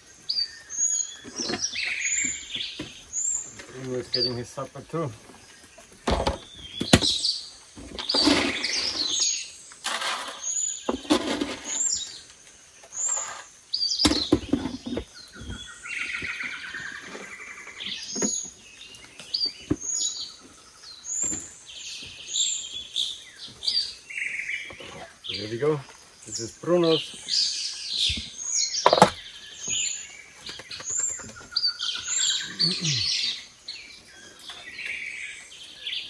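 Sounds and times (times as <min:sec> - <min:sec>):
birds chirping: 0:00.0 - 0:36.0
plastic containers knocking: 0:06.0 - 0:07.2, 0:14.0 - 0:15.6, 0:28.0 - 0:29.8
bird trilling call: 0:31.0 - 0:33.5.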